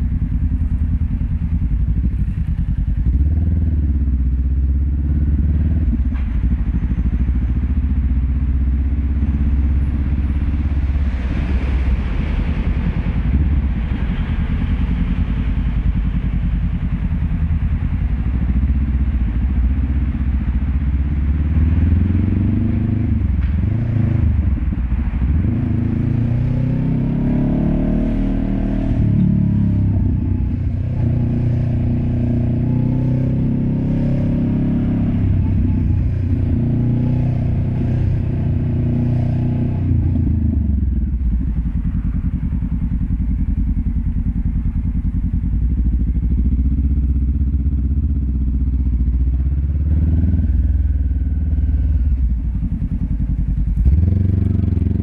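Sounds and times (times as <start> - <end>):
motorcycle engine revving: 0.0 - 7.8, 21.1 - 55.0.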